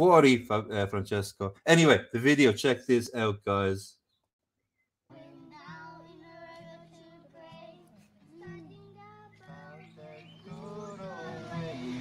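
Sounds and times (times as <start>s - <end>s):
acoustic guitar: 5.1s - 12.0s
girl singing: 5.1s - 12.0s.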